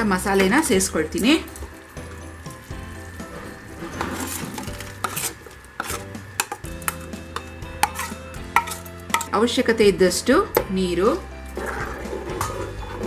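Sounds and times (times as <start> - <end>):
spoon scraping steel bowl: 3.2 - 9.4.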